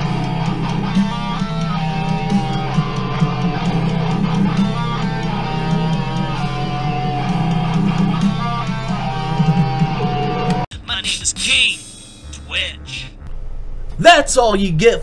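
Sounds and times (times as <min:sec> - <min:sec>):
distorted electric guitars: 0:00.0 - 0:10.7
heavy metal band playing: 0:00.0 - 0:13.0.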